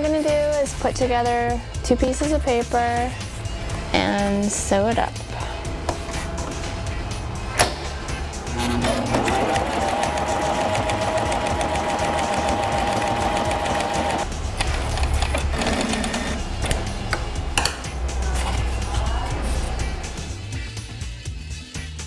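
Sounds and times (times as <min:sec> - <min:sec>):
sewing machine stitching paper: 0:09.1 - 0:14.2.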